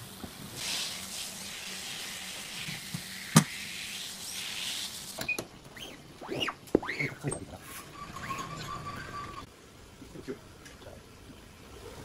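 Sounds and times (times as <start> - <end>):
squeegee squeaks: 5.2 - 9.5.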